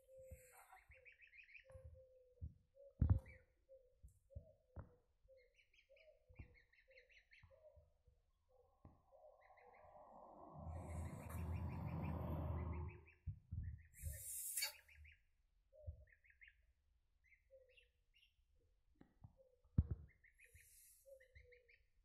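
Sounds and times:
low rumbling noise: 0:08.6 - 0:13.2
lower short calls: 0:09.0 - 0:13.1
goslings peeping: 0:10.6 - 0:12.7.

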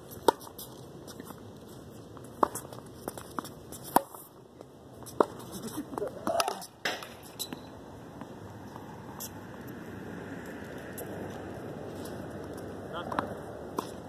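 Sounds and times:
tennis balls bouncing on hard court: 0:00.1 - 0:01.4, 0:02.2 - 0:08.4, 0:12.5 - 0:14.0
tennis balls struck by rackets: 0:00.1 - 0:01.4, 0:02.2 - 0:04.4, 0:05.0 - 0:08.4, 0:13.0 - 0:14.0.

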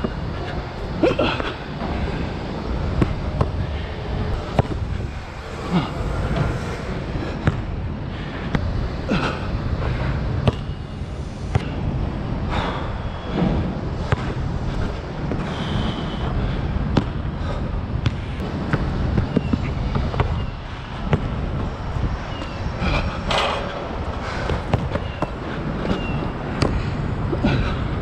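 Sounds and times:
low rumble: 0:00.0 - 0:28.0
basketball bouncing: 0:04.4 - 0:04.9, 0:07.4 - 0:07.7, 0:10.4 - 0:10.8, 0:11.5 - 0:11.8, 0:14.0 - 0:14.4, 0:16.9 - 0:17.2, 0:18.0 - 0:21.7, 0:24.4 - 0:26.0.

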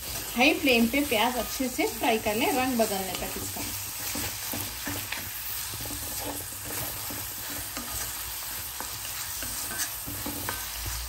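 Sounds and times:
onions sizzling in hot oil: 0:00.0 - 0:11.0
spatula scraping pan: 0:00.0 - 0:11.0.

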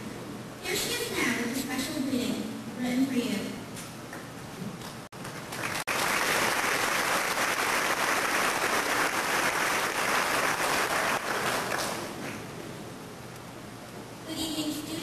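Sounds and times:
audience applauding: 0:05.2 - 0:12.2.

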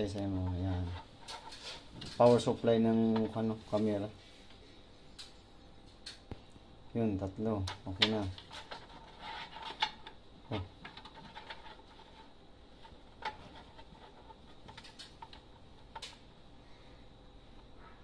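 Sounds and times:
small parts clicking and tapping: 0:12.8 - 0:16.2.

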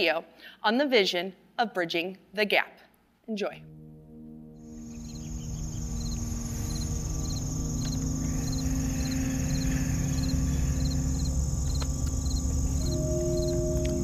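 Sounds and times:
low musical drone: 0:03.6 - 0:14.0
crickets chirping: 0:04.6 - 0:14.0
high insect trill: 0:04.6 - 0:14.0.

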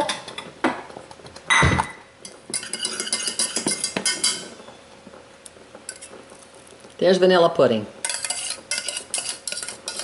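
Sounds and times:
whisk clinking against saucepan: 0:02.2 - 0:04.6, 0:08.0 - 0:10.0.

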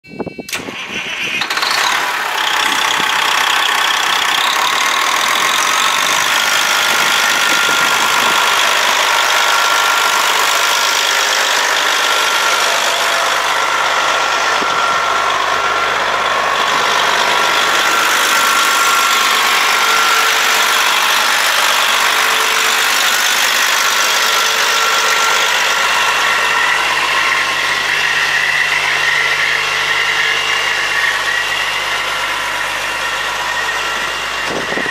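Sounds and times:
diesel truck engine idling: 0:00.4 - 0:34.9.

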